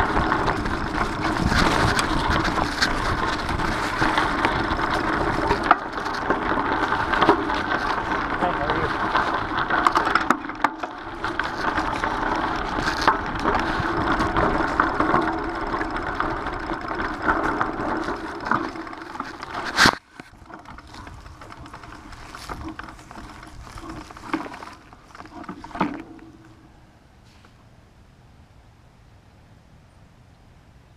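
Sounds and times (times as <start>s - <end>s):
bike rattling: 0.0s - 27.4s
bike tyres crunching on gravel: 0.0s - 27.5s.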